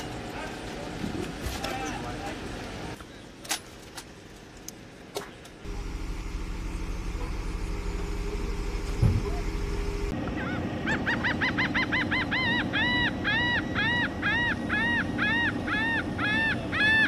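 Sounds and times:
diesel engine running: 5.6s - 10.9s
thump: 8.9s - 9.4s.

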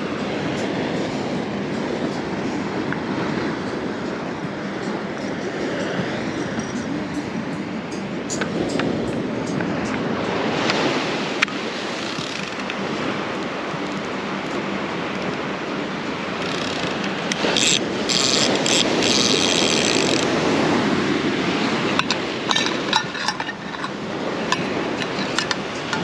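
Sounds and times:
ocean surf washing ashore: 0.0s - 26.0s
light clicks and clinks: 21.8s - 26.0s.

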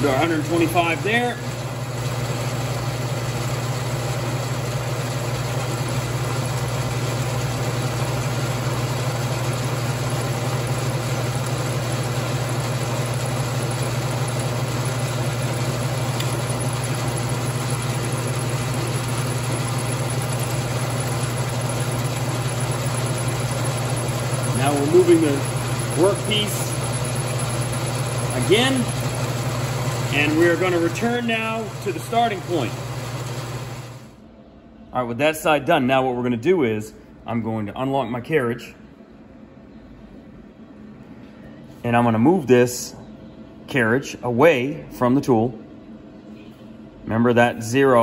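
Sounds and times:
lathe milling hiss: 0.0s - 34.1s
low machine hum: 0.0s - 48.0s.

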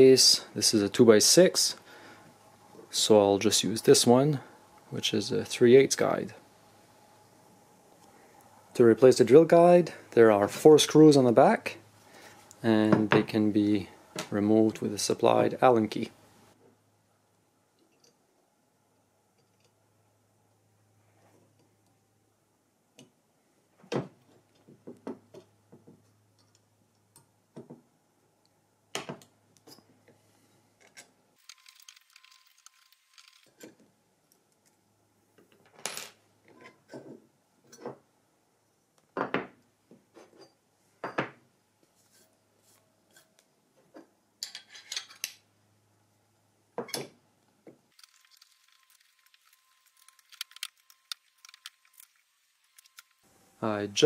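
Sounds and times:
small metal parts clicking: 30.8s - 33.8s, 47.9s - 53.2s.

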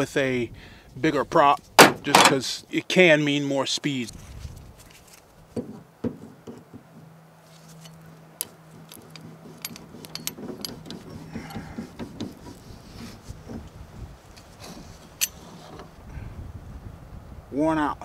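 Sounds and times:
metal tool scraping wood: 5.0s - 16.0s.

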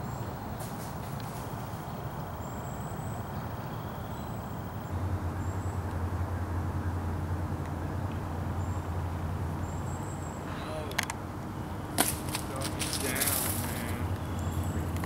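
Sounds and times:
faint high bird chirps: 0.0s - 5.8s
low outdoor rumble: 0.0s - 15.0s.

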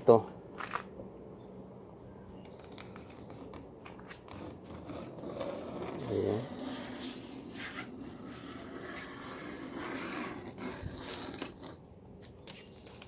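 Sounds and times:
tape liner peeling: 2.6s - 13.0s.

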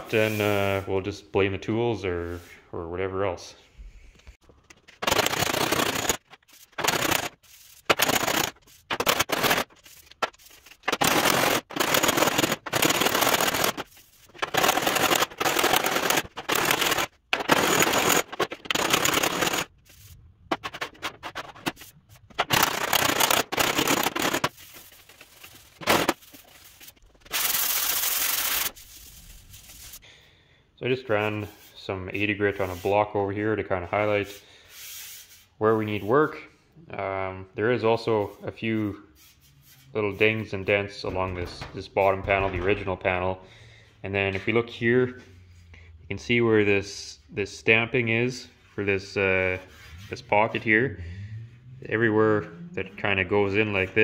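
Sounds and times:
sandpaper rasping on steel: 5.3s - 30.0s, 33.9s - 36.0s, 38.1s - 40.9s, 48.6s - 50.6s.

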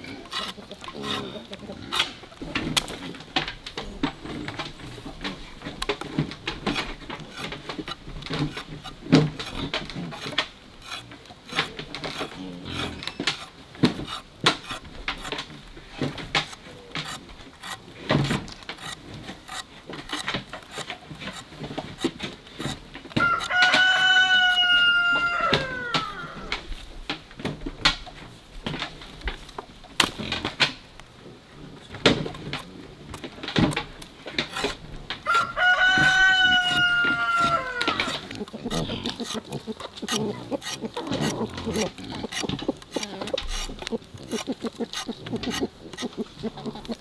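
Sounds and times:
machete scraping cassava skin: 0.0s - 26.6s, 32.1s - 47.0s
rooster crowing: 23.2s - 26.5s, 35.2s - 38.2s.

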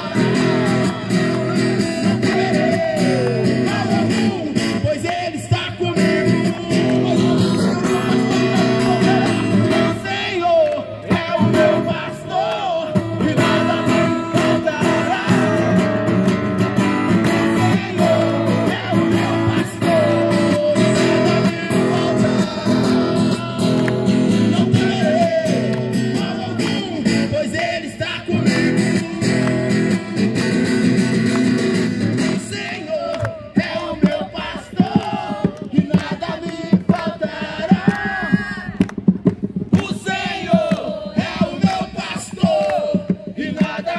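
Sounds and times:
strummed acoustic guitar: 0.0s - 10.2s, 11.1s - 32.8s
man singing: 0.0s - 16.1s, 17.4s - 30.2s, 32.2s - 38.8s, 39.8s - 43.9s.

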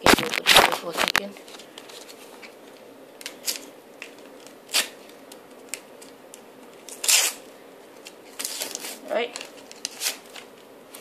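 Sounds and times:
paper rustles and crinkles: 0.0s - 5.8s, 8.0s - 11.0s
paper packet tearing: 4.6s - 5.2s, 6.8s - 7.4s, 8.3s - 10.6s.

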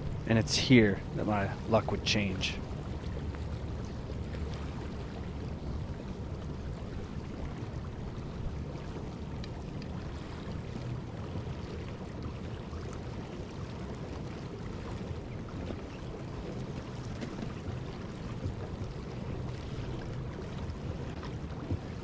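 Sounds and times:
river current flowing: 0.0s - 11.0s
wind rumble on microphone: 0.0s - 22.0s.

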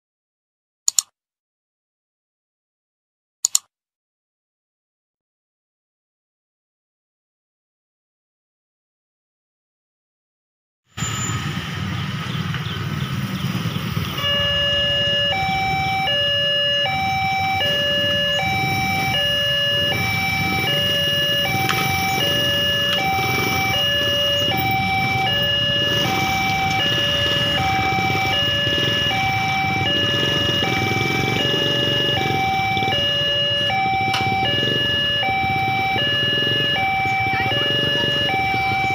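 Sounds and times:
two-tone level crossing alarm: 11.0s - 38.9s.

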